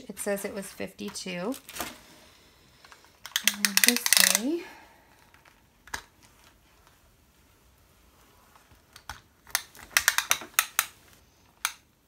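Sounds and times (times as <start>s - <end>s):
tape measure clicking: 3.4s - 4.5s.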